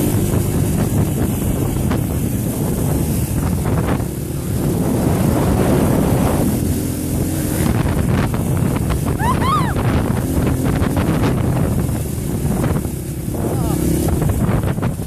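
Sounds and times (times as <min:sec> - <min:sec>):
wind buffeting microphone: 0:00.0 - 0:15.0
high rising and falling call: 0:09.2 - 0:09.8.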